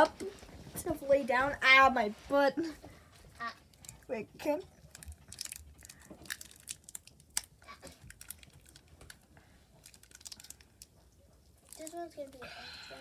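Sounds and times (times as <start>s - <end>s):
wrapper crinkling and tearing: 4.7s - 10.9s, 11.6s - 12.4s.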